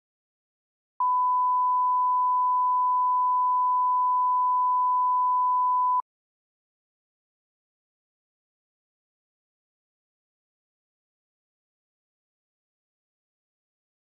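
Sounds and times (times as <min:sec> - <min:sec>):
steady test tone beep: 0:01.0 - 0:06.0.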